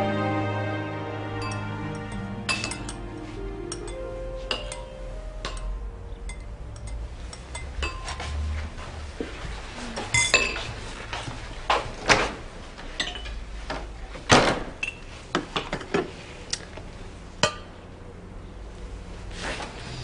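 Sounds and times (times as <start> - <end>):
kitchen dishes clattering: 6.3 - 8.2, 10.1 - 10.8, 13.0 - 13.4.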